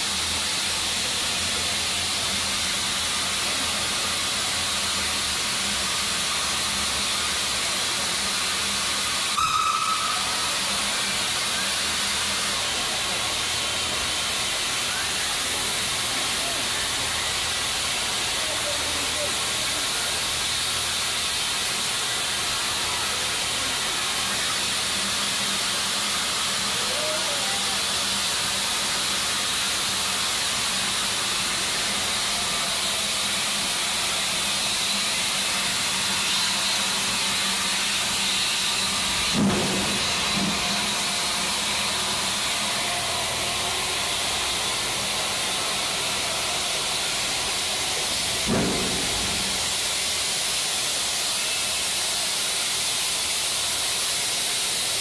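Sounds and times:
steam hissing from locomotive: 0.0s - 55.0s.

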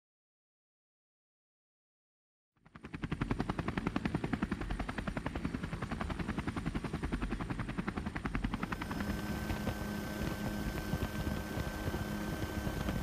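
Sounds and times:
helicopter rotor blades beating: 2.6s - 13.0s
low steady drone: 8.4s - 13.0s.

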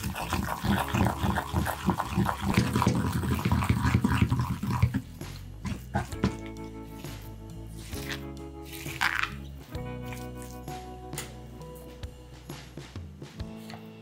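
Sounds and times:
wooden pestle mashing in ceramic bowl: 0.0s - 9.4s.

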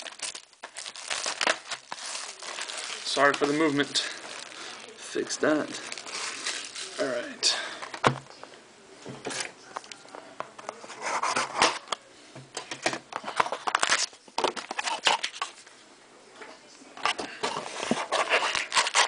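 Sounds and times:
cardboard and wrapping rustling: 0.0s - 8.3s, 13.2s - 15.7s, 17.0s - 19.0s.

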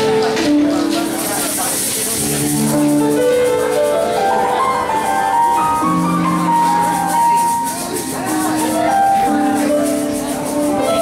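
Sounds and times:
electric keyboard melody: 0.0s - 11.0s.

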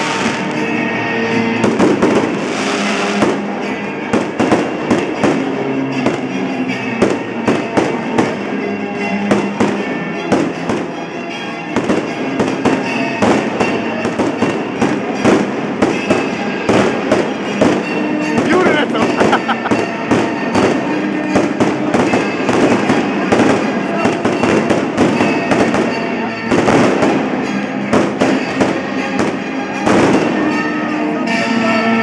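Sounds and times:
fireworks bangs and crackles: 0.0s - 32.0s
music: 0.0s - 32.0s.

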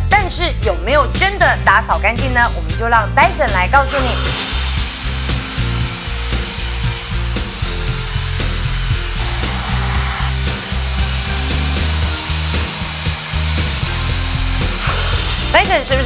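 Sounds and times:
background music with steady beat: 0.0s - 16.0s
handheld vacuum cleaner whirring: 3.8s - 16.0s.

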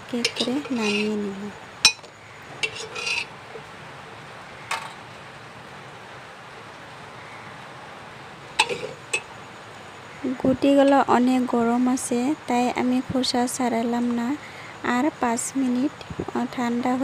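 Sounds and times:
utensil clinking on steel pot: 0.0s - 1.2s, 1.8s - 3.3s, 8.6s - 9.3s
faint steady hiss: 0.0s - 17.0s.

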